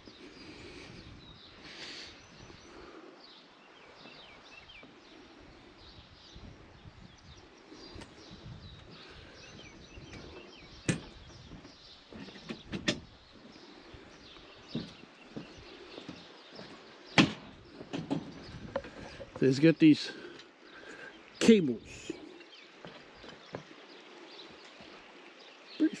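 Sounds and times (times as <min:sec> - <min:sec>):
faint birds chirping: 0:00.0 - 0:26.0
footsteps on wooden bridge planks: 0:07.9 - 0:19.5, 0:22.8 - 0:23.9
sharp knocks: 0:17.2 - 0:19.4.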